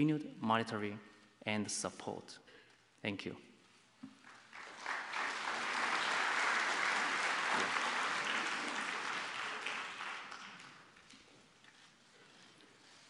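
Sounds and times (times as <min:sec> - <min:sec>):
audience applause: 0:04.2 - 0:11.1.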